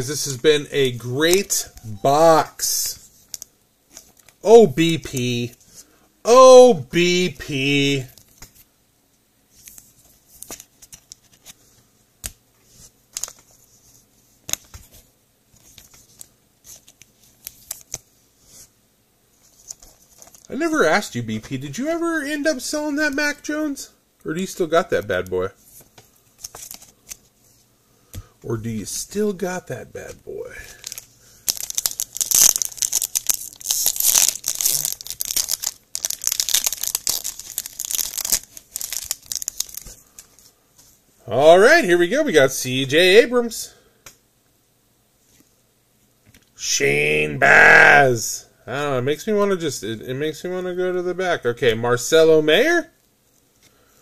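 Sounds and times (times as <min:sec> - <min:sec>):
card pack wrapper crinkling and tearing: 0:13.1 - 0:13.5, 0:19.5 - 0:20.5, 0:30.6 - 0:40.4.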